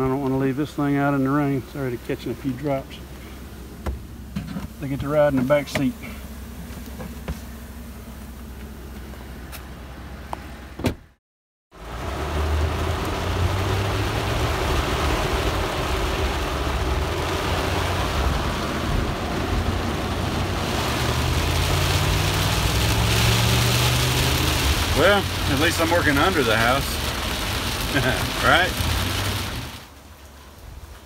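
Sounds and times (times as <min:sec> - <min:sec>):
rain hitting windshield and roof: 0:00.0 - 0:07.5, 0:11.8 - 0:31.0
thump: 0:03.8 - 0:04.7, 0:10.8 - 0:11.1
truck engine rumble: 0:11.8 - 0:31.0.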